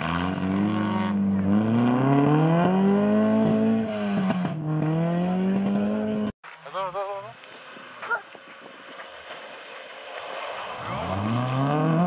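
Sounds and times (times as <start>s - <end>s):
rally car engine pulling hard: 0.0s - 6.3s, 9.7s - 12.0s.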